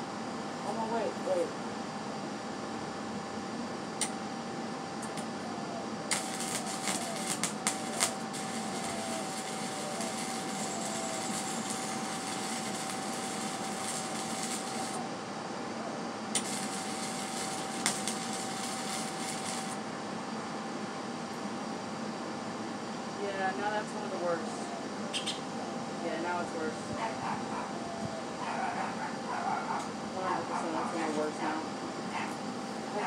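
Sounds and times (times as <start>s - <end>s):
welding arc pops and crackles: 4.0s - 4.2s, 6.1s - 15.0s, 16.3s - 19.8s
arc welder sizzling: 5.0s - 15.2s, 16.3s - 19.9s.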